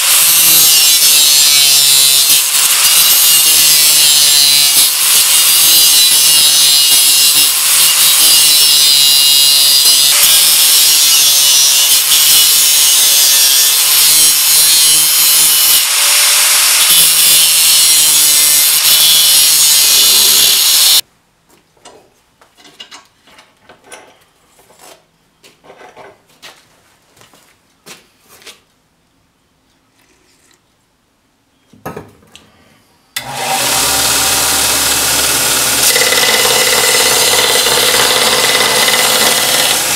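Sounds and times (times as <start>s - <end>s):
angle grinder cutting steel: 0.0s - 21.0s, 33.2s - 39.9s
belt grinder humming: 33.2s - 39.9s.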